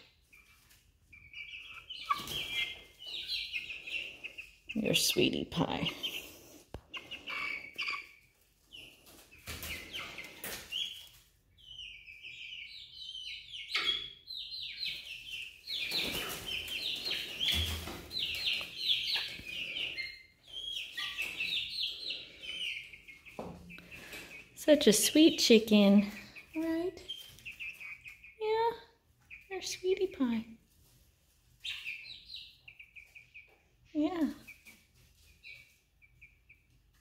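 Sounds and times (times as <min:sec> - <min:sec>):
chicks peeping: 0:00.0 - 0:37.0.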